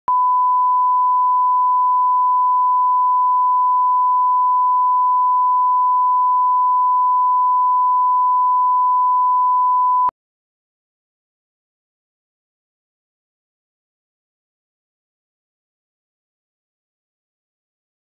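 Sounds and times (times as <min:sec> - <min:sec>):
sine-wave reference tone: 0:00.1 - 0:10.1.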